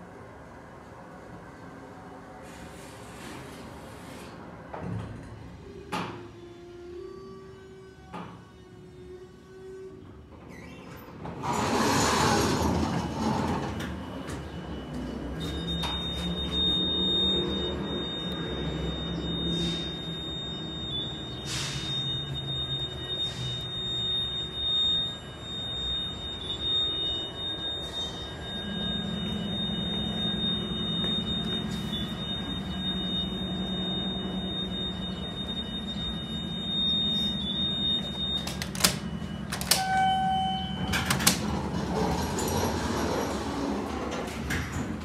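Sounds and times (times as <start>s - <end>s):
elevator low hum: 0.0s - 45.0s
elevator doors sliding open: 10.1s - 45.0s.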